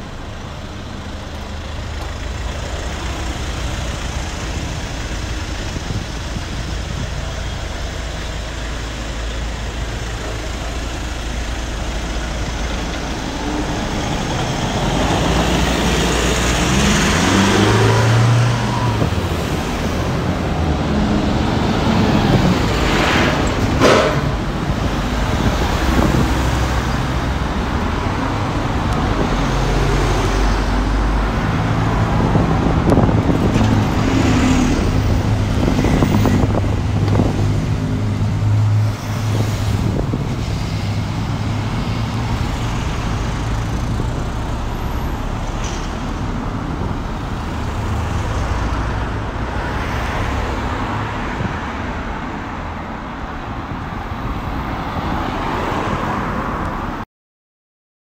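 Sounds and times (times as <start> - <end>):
vehicle engine low hum: 0.0 - 49.4
cars driving past: 0.0 - 57.0.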